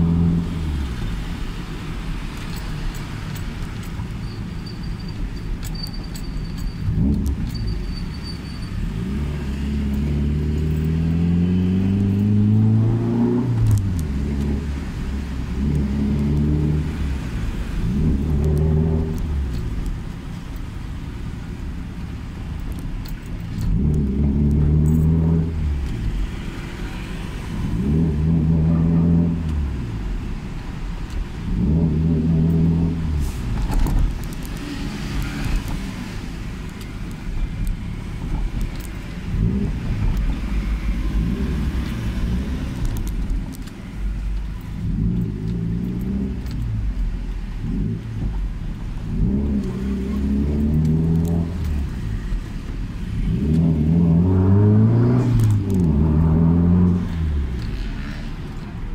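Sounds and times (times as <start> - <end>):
turbocharged car engine revving: 8.8 - 19.7, 23.5 - 30.0, 44.8 - 58.9.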